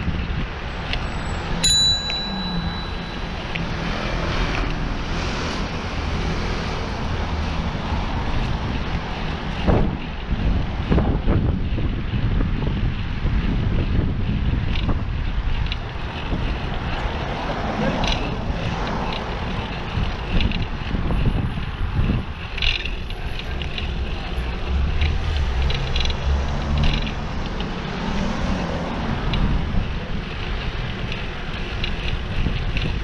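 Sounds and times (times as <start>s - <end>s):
bicycle clicks and rattles: 0.0s - 33.0s
passing vehicle engine hum: 0.0s - 33.0s
wind on microphone: 0.0s - 33.0s.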